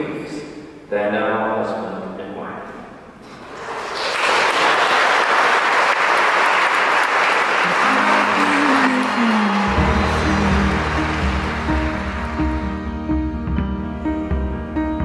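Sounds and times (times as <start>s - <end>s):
congregation clapping: 3.4s - 13.0s
music: 7.6s - 15.0s.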